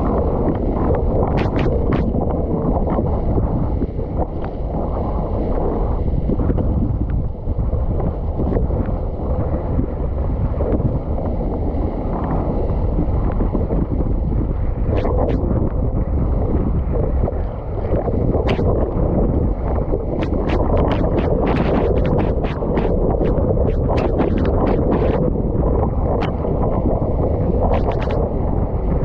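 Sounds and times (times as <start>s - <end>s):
wind buffeting microphone: 0.0s - 29.0s
sharp ticks: 1.4s - 2.1s, 20.2s - 25.2s, 27.7s - 28.2s.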